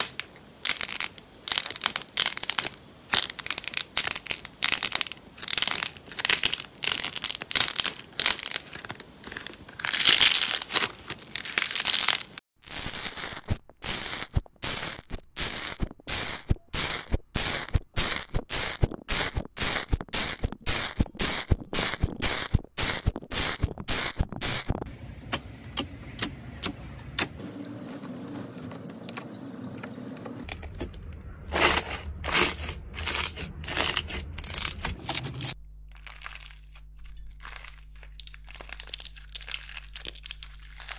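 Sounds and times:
soft crinkly slime squishing: 0:00.0 - 0:12.4, 0:31.6 - 0:40.9.

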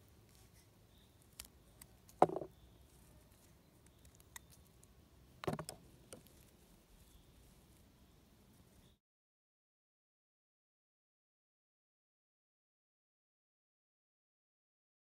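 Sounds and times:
mushrooms knocking on plastic box: 0:02.2 - 0:02.5, 0:05.4 - 0:05.8.

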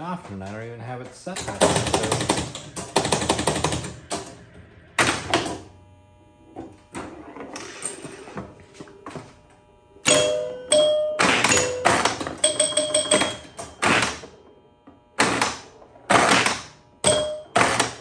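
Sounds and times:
relays and score reels clattering: 0:00.0 - 0:04.4
pinball scoring chimes: 0:01.3 - 0:05.7, 0:10.0 - 0:18.0
pinball machine thunk: 0:01.4 - 0:05.7, 0:10.0 - 0:14.6, 0:15.2 - 0:18.0.

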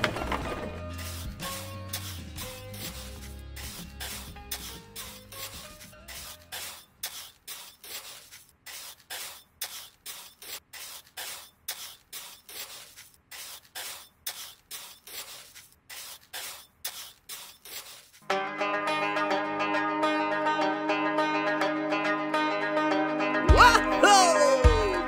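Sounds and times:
background music: 0:00.0 - 0:06.5, 0:18.2 - 0:25.0
hand sanding rubbing strokes: 0:00.9 - 0:18.2.

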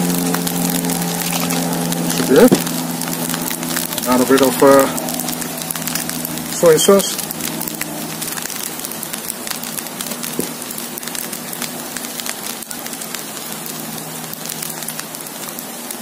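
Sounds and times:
rice sizzling in a wok: 0:00.0 - 0:16.0.

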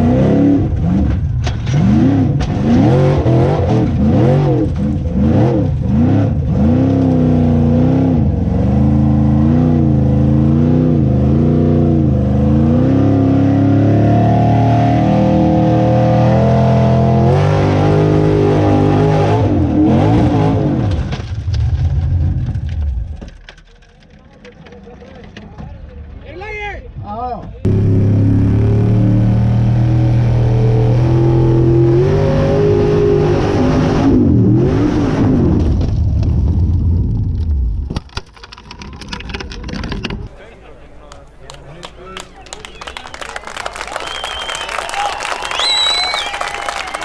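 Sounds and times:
buggy engine revving: 0:00.0 - 0:25.3, 0:27.6 - 0:37.4.

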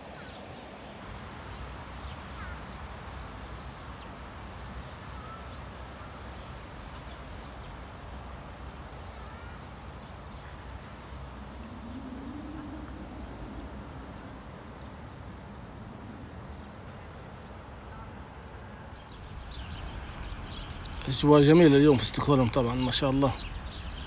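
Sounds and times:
distant traffic: 0:00.0 - 0:24.0
faint bird chirps: 0:00.1 - 0:24.0.

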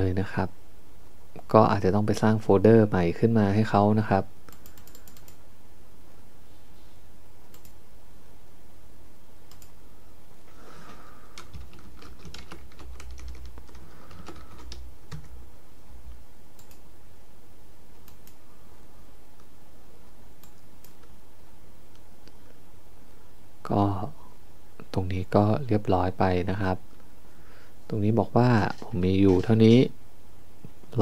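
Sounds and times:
keyboard typing: 0:04.5 - 0:05.4, 0:09.5 - 0:09.8, 0:10.8 - 0:15.4, 0:16.6 - 0:16.8
mouse clicks: 0:04.5 - 0:05.4, 0:07.5 - 0:07.8, 0:09.5 - 0:09.8, 0:16.6 - 0:16.8.

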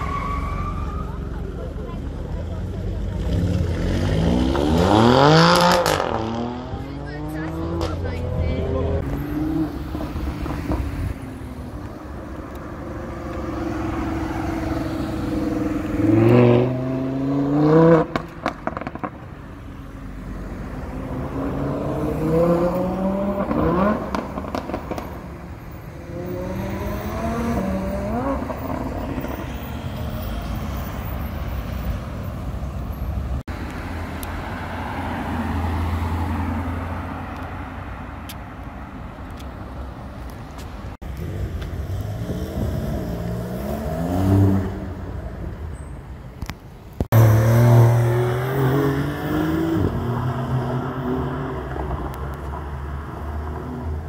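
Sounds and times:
sports car engines accelerating: 0:01.2 - 0:29.6, 0:41.0 - 0:45.8, 0:46.4 - 0:54.0.

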